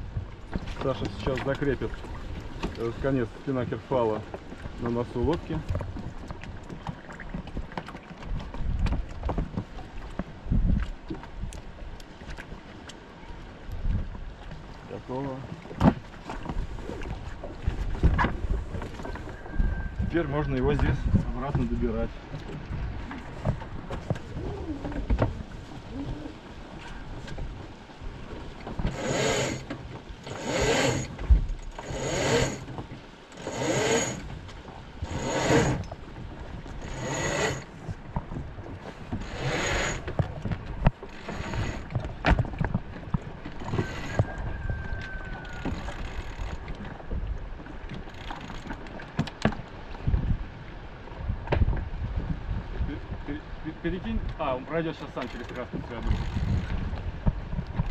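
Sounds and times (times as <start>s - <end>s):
rope hauled by hand: 28.9s - 29.7s, 30.3s - 31.2s, 31.8s - 32.8s, 33.4s - 34.3s, 35.0s - 35.8s, 36.8s - 37.7s, 39.2s - 40.1s.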